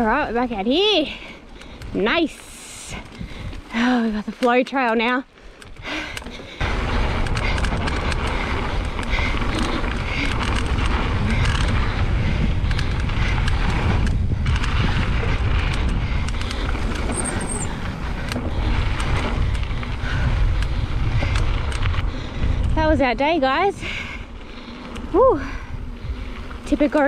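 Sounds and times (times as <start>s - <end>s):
bike rattling over bumps: 0.0s - 27.0s
bike tyre noise: 0.0s - 27.0s
wind rushing over microphone: 1.8s - 4.4s, 5.6s - 27.0s.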